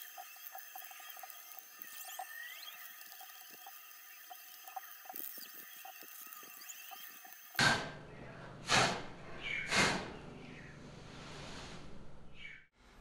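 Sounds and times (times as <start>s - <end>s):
puffs of breath blowing: 9.6s - 10.1s.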